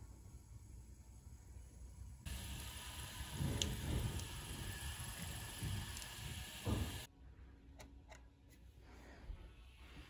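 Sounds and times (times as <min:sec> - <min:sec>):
liquid simmering with bubbling: 0:02.2 - 0:07.1.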